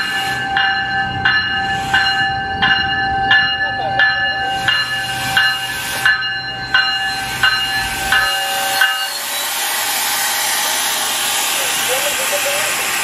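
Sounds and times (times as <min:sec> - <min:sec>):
train warning bell ringing: 0:00.0 - 0:13.0.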